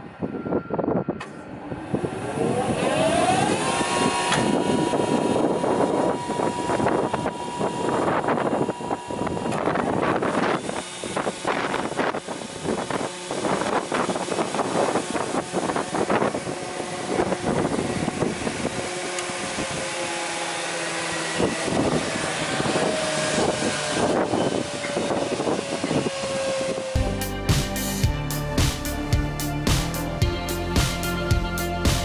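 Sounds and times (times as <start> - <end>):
wind gusting on microphone: 0.0 - 27.2
motor whine winding down: 0.0 - 32.0
spindle moulder running: 2.0 - 27.1.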